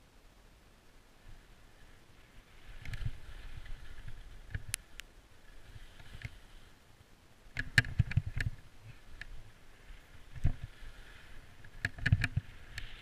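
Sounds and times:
skis scraping over snow: 0:01.2 - 0:04.7, 0:05.3 - 0:06.8, 0:08.2 - 0:13.0
skis and poles clicking: 0:02.2 - 0:06.7, 0:07.5 - 0:13.0.

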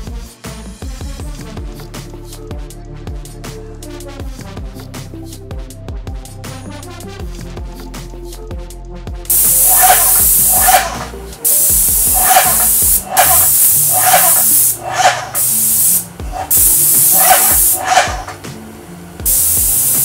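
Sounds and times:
paint sprayer hissing: 0:09.3 - 0:20.0.

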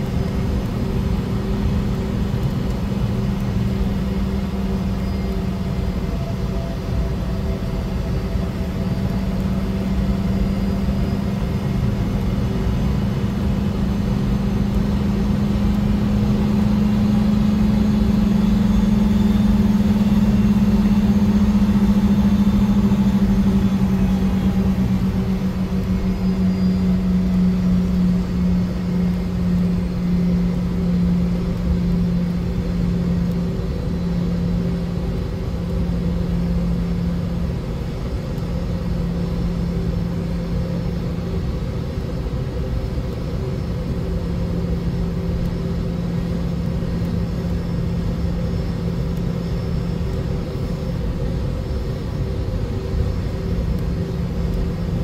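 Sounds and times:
jet engines droning: 0:00.0 - 0:55.0.

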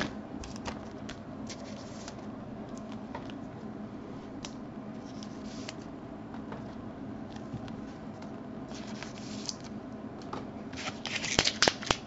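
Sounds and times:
cards rustling and clicking: 0:10.8 - 0:12.0.

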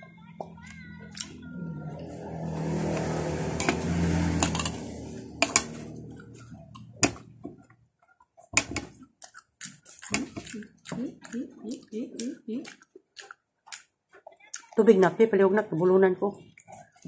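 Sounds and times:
chewing: 0:00.6 - 0:02.1, 0:05.9 - 0:14.9, 0:16.4 - 0:17.0.

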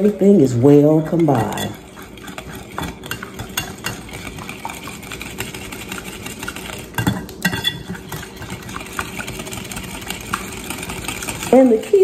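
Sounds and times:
whisk clicking against glass bowl: 0:01.0 - 0:12.0.

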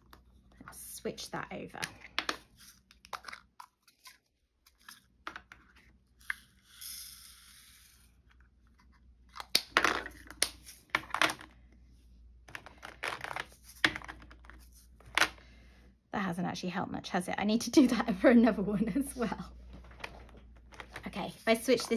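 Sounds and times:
beads pouring hissing rattle: 0:06.3 - 0:08.1.

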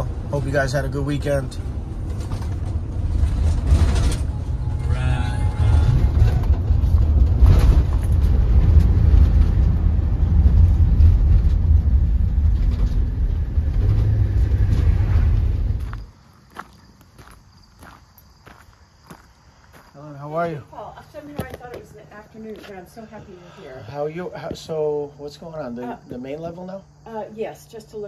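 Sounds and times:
vehicle engine and tyre rumble: 0:00.0 - 0:20.0.

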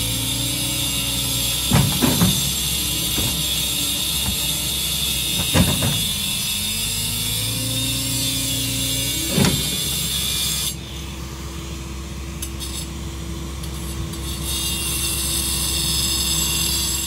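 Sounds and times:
track loader engine running: 0:00.0 - 0:14.5
loud clunk: 0:01.6 - 0:04.7, 0:05.3 - 0:06.3, 0:09.2 - 0:10.4.

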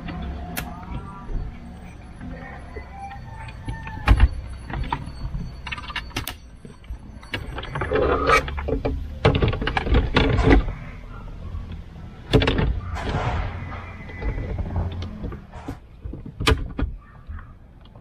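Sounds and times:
hard plastic clicking and scraping: 0:07.3 - 0:10.8.

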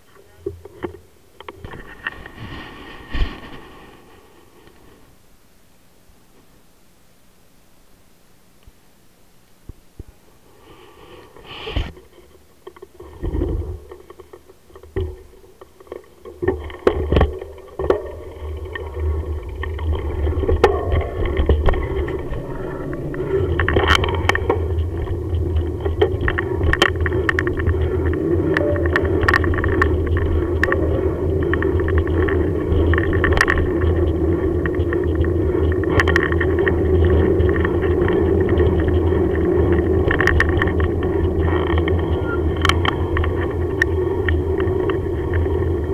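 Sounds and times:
bike rattling over bumps: 0:01.6 - 0:05.0, 0:12.9 - 0:45.9
bicycle tyres rumbling on tarmac: 0:01.6 - 0:05.1, 0:12.9 - 0:45.9.

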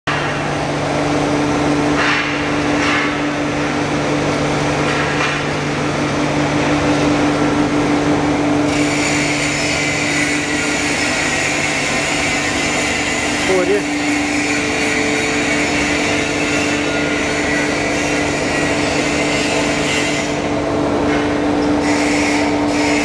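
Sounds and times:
foam-cutting machine motor hum: 0:05.7 - 0:23.0.

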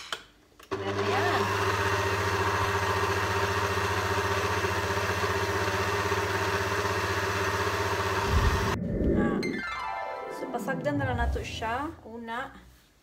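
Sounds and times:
stand mixer motor humming: 0:00.7 - 0:08.8.

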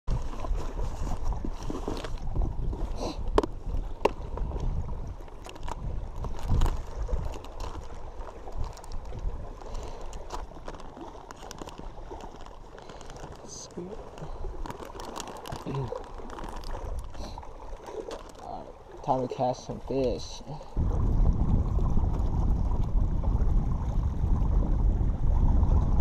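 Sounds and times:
wind buffeting microphone: 0:00.1 - 0:12.2, 0:19.9 - 0:26.0
plastic box clicking and rustling: 0:14.6 - 0:16.7.

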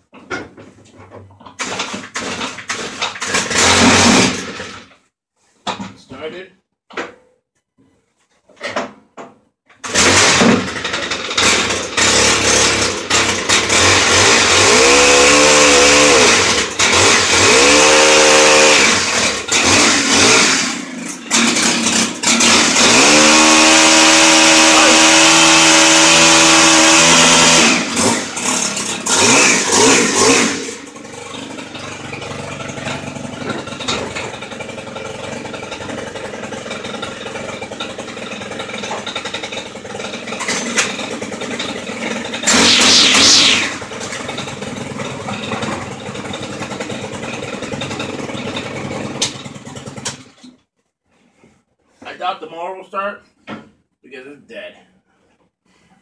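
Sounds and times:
string trimmer engine revving: 0:01.6 - 0:04.8, 0:09.8 - 0:32.3, 0:42.4 - 0:44.1.

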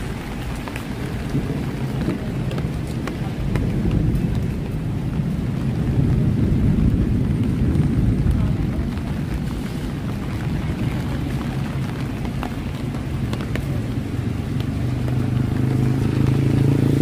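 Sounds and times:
traffic rumble on wet road: 0:00.0 - 0:17.0
vehicle passing: 0:10.3 - 0:17.0.

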